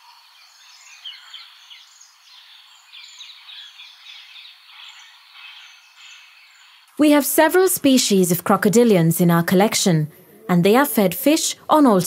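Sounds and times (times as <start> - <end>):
small birds chirping: 0.0 - 6.9.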